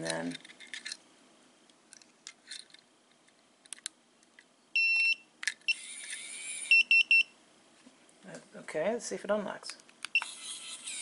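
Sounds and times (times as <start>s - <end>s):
electronic door lock beeps: 4.8s - 5.9s, 10.1s - 10.4s.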